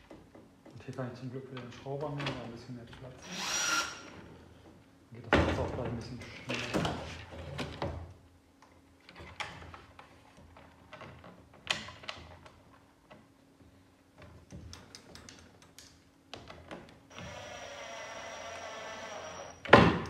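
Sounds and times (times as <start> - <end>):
cordless screwdriver running: 3.2 - 4.1, 17.1 - 19.6.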